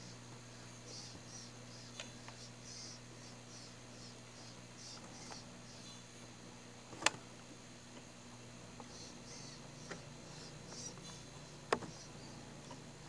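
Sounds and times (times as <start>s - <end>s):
faint high chirping: 0.0s - 6.3s, 8.8s - 13.0s.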